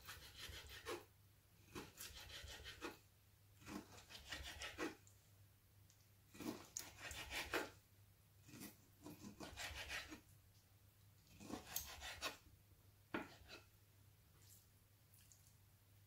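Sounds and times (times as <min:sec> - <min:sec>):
knife scraping on wooden board: 0:00.0 - 0:01.0, 0:01.7 - 0:03.0, 0:03.6 - 0:05.0, 0:06.3 - 0:07.8, 0:08.4 - 0:10.2, 0:11.3 - 0:12.4, 0:13.1 - 0:13.7.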